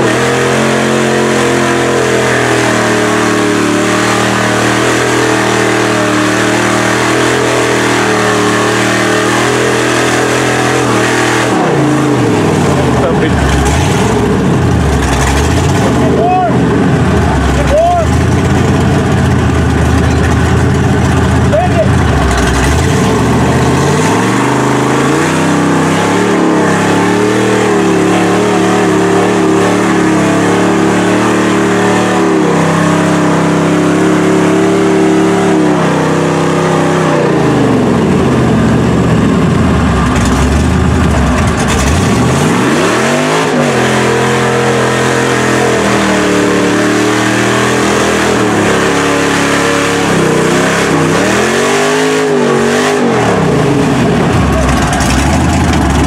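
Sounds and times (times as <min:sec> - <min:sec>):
truck engine revving hard: 0:00.0 - 0:56.0
tyres spinning in mud: 0:54.3 - 0:56.0.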